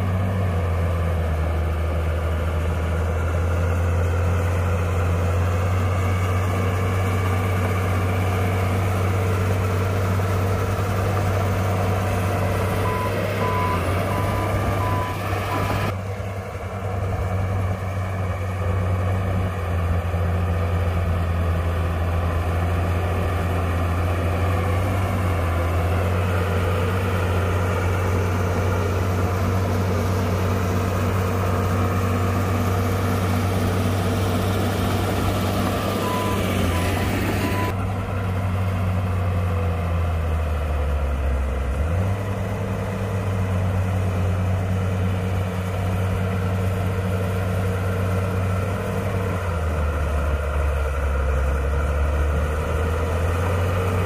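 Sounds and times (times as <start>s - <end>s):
bulldozer diesel engine running: 0.0s - 54.0s
short beeps: 12.8s - 15.8s, 36.0s - 37.7s.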